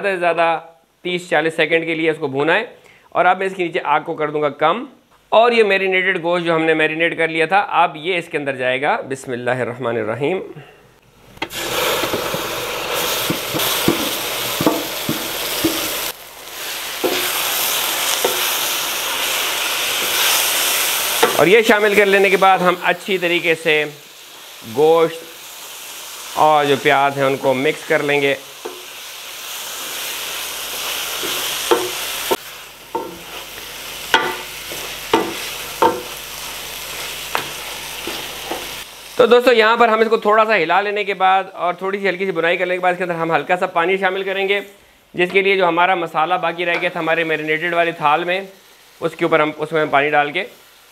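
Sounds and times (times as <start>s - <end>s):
beef sizzling in hot oil: 11.4s - 41.0s, 46.5s - 50.9s
wooden spoon knocking on pot: 13.2s - 15.9s, 31.2s - 32.0s, 32.9s - 33.3s, 34.1s - 36.1s.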